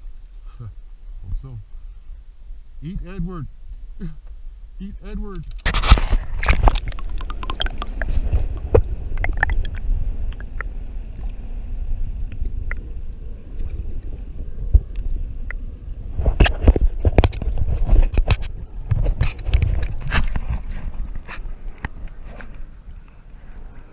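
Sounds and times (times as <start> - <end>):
low rumble: 0.0 - 23.9
muffled water rushing and gurgling: 5.8 - 23.9.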